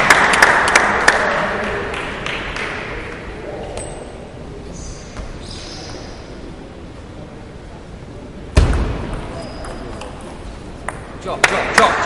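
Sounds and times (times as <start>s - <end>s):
applause in a hall: 0.0s - 3.1s.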